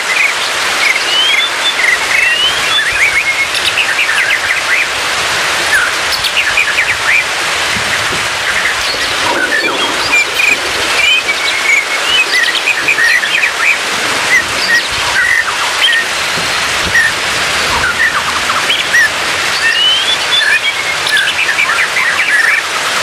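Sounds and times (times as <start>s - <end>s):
rain-like hiss: 0.0s - 23.0s
bird chirps and whistles: 0.2s - 4.9s, 8.6s - 16.1s, 16.9s - 22.7s.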